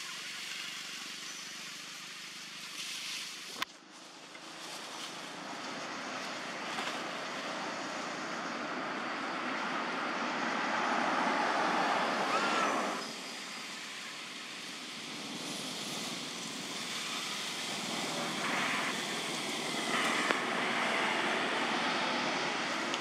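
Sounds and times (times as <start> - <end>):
outdoor background noise: 0.0 - 23.0.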